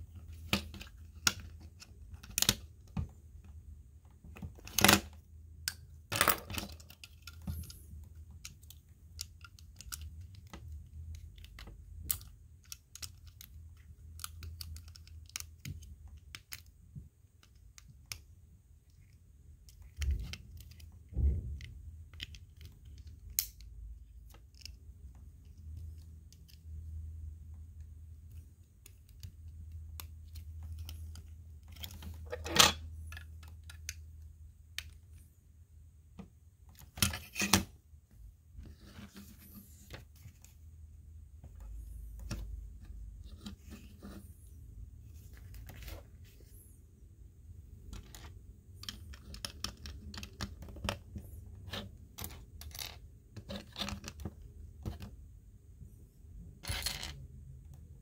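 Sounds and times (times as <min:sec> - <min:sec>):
plastic lego pieces clicking: 0:08.3 - 0:16.7.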